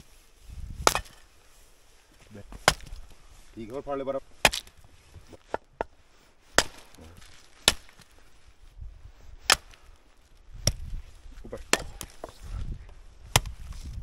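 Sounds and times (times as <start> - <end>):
firewood chopping strikes: 0.7 - 1.4, 2.4 - 8.3, 9.4 - 12.4, 13.2 - 13.8.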